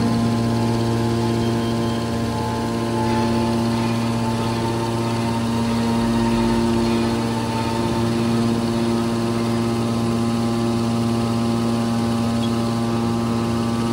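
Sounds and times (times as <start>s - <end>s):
hydraulic machine hum: 0.0s - 13.9s.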